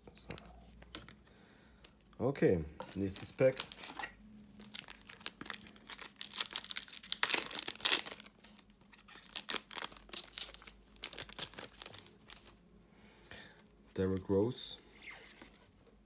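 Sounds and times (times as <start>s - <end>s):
wrapper tearing and crinkling: 2.9s - 12.5s.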